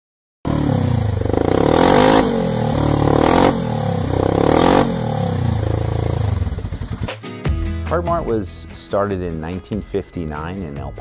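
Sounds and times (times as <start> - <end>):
vehicle engine accelerating: 0.5 - 7.1.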